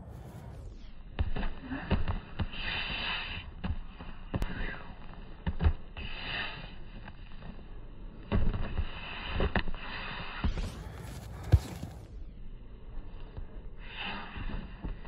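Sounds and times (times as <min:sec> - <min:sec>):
short sharp breaths: 0:08.9 - 0:12.2.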